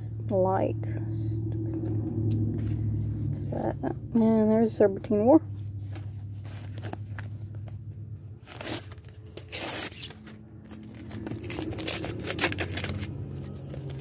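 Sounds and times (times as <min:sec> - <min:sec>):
low steady hum: 0:00.0 - 0:14.0
paper crinkling: 0:05.7 - 0:14.0
paper packet ripping: 0:05.9 - 0:07.8, 0:08.4 - 0:14.0.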